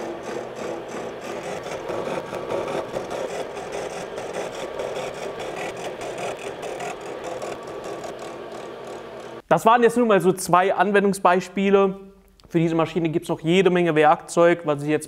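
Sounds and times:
fast ticking of cutter teeth: 0:00.0 - 0:09.4
milling machine cutting metal: 0:00.0 - 0:09.4
motor and gearbox hum: 0:00.0 - 0:09.4.

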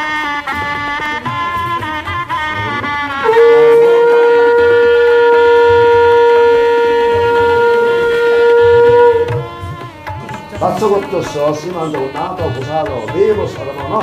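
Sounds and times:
conch shell blown: 0:00.0 - 0:12.6.

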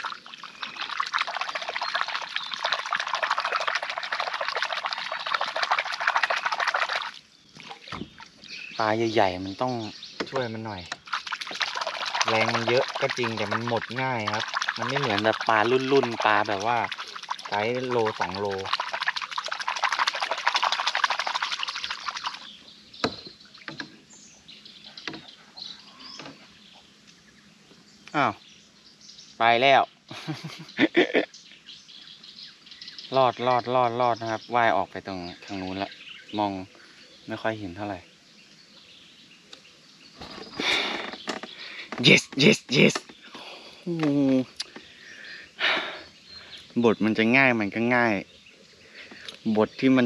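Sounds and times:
water splashing and sloshing: 0:00.0 - 0:27.2, 0:40.1 - 0:45.2
faint bird chirps: 0:21.4 - 0:50.0
sharp knocks: 0:23.0 - 0:24.0.

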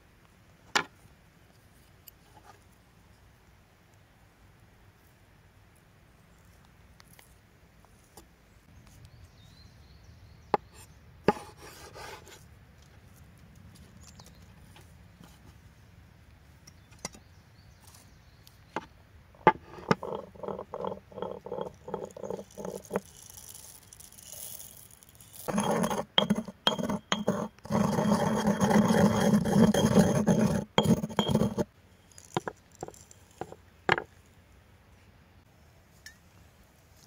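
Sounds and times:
mortar and pestle grinding: 0:19.5 - 0:34.1
pestle striking stone mortar: 0:29.0 - 0:31.7.

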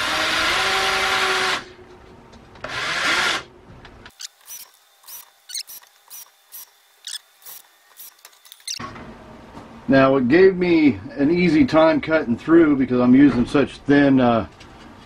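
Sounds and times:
cordless drill driving screws: 0:04.1 - 0:08.8.

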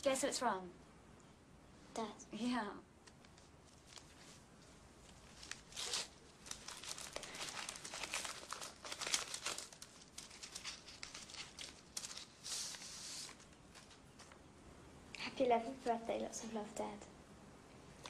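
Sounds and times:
paper crackling and rustling: 0:03.0 - 0:14.4
envelope tearing: 0:05.3 - 0:14.0.

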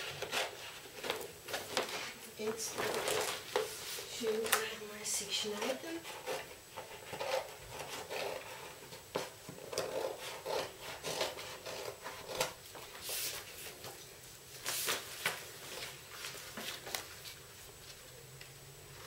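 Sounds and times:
paper crinkling: 0:00.0 - 0:04.8, 0:09.6 - 0:18.2
scissors cutting paper: 0:05.5 - 0:12.6.

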